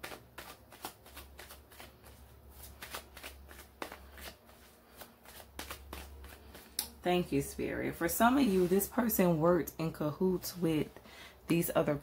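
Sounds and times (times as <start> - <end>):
cards being shuffled: 0.0 - 7.0.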